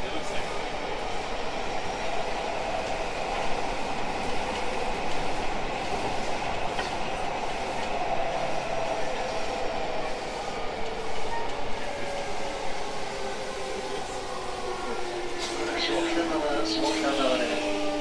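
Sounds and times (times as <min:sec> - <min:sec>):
train wheels rolling on rails: 0:00.0 - 0:18.0.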